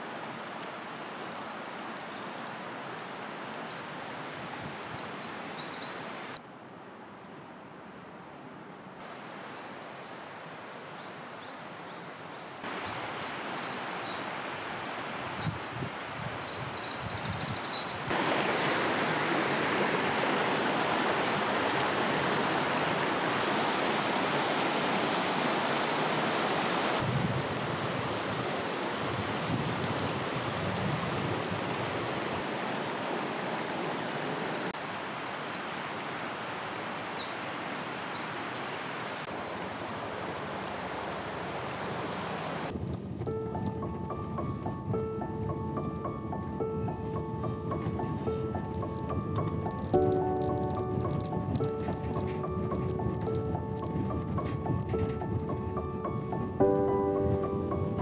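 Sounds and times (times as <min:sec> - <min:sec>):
stream rushing over rocks: 0:00.0 - 0:06.4, 0:09.0 - 0:11.4, 0:12.6 - 0:17.2, 0:17.8 - 0:42.8
small birds chirping: 0:03.7 - 0:06.4, 0:11.0 - 0:18.2, 0:22.3 - 0:23.0, 0:33.4 - 0:39.3.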